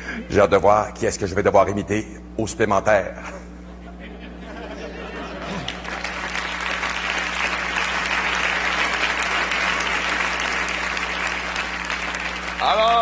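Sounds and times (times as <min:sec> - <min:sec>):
audience applauding: 0:05.4 - 0:13.0.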